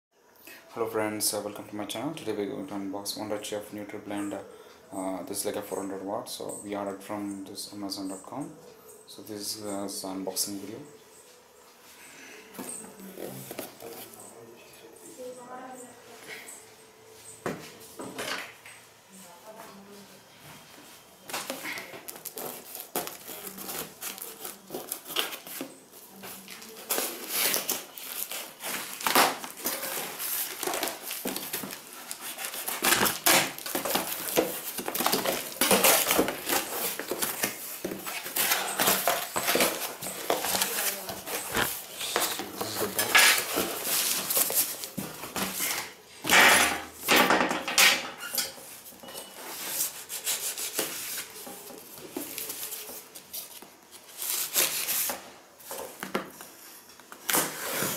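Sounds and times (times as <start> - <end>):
knife cutting cardboard and tape: 21.4 - 47.2, 49.5 - 55.2, 57.1 - 57.9.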